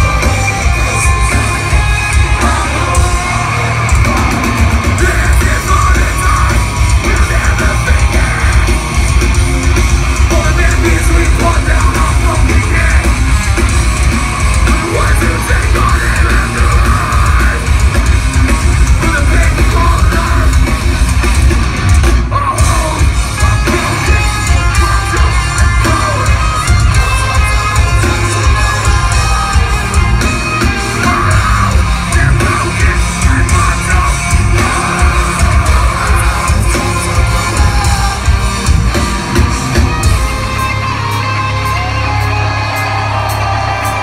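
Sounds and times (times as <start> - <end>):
metalcore band playing live: 0.0 - 44.0.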